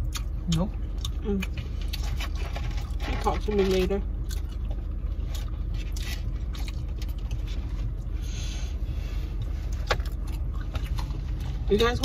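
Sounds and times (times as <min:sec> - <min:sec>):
car idling: 0:00.0 - 0:12.0
scraping rustle: 0:01.7 - 0:04.0.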